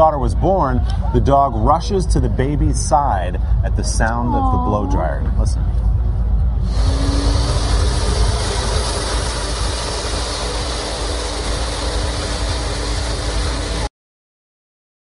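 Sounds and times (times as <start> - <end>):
hair dryer running: 6.6 - 13.9.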